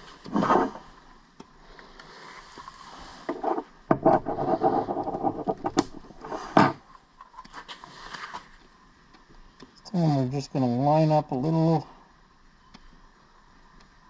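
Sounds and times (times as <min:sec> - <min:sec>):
device handling scraping and rubbing: 0:00.2 - 0:00.9, 0:02.2 - 0:08.5.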